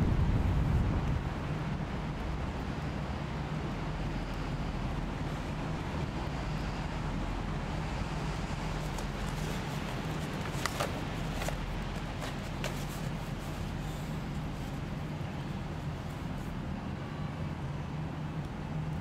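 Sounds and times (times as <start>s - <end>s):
low urban rumble and hum: 0.0s - 19.0s
cardboard clicks and rustles: 8.7s - 14.0s.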